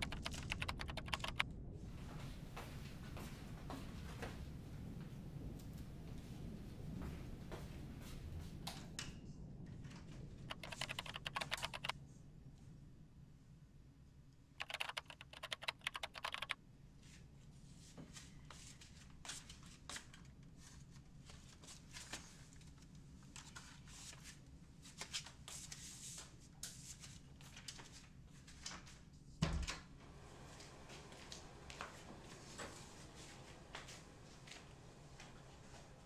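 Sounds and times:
keyboard typing: 0:00.0 - 0:01.4, 0:10.5 - 0:11.9, 0:14.6 - 0:16.6.

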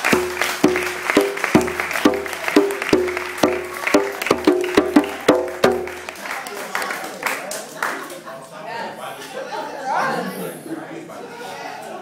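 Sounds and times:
repeated struck note: 0:00.0 - 0:06.1.

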